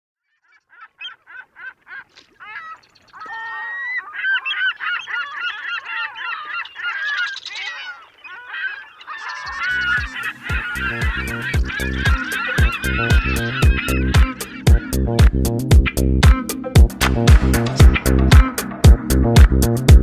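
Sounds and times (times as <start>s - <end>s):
large birds calling: 0.2s - 18.8s
music beat: 9.6s - 20.0s.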